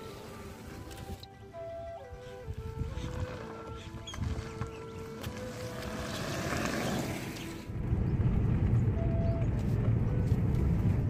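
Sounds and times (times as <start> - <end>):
tyres hissing on asphalt: 5.2 - 7.7
car cabin engine and road rumble: 7.3 - 11.0.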